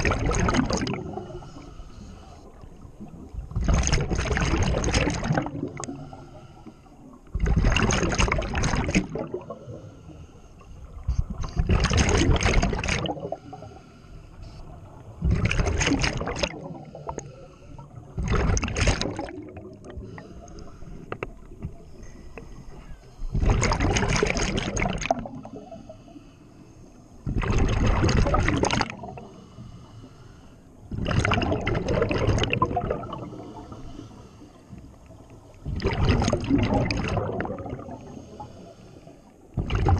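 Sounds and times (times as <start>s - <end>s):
exhaust bubbles rushing: 0.0s - 1.2s, 3.2s - 5.9s, 7.4s - 9.6s, 11.6s - 13.3s, 23.4s - 25.5s, 30.9s - 33.3s, 35.7s - 38.0s.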